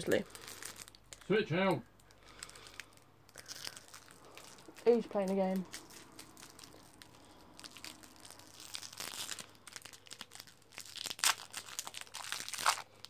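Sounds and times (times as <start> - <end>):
plastic wrapper crinkling: 0.0 - 1.4, 2.0 - 13.0.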